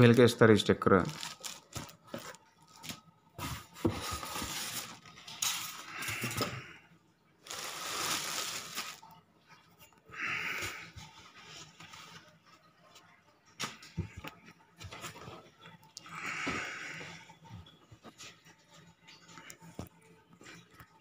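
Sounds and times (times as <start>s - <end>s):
plastic wrapping rustling: 0.8s - 6.5s, 7.4s - 9.2s.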